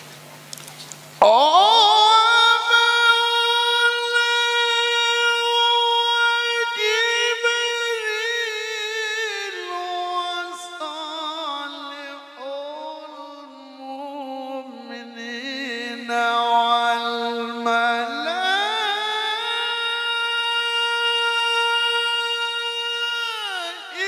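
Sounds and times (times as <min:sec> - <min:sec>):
man reciting melodically: 0:01.2 - 0:24.0.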